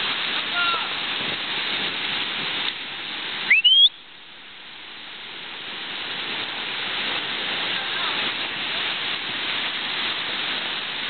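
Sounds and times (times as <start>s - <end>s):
river rapids rushing: 0.0s - 11.0s
upward gliding whistle: 3.5s - 4.0s.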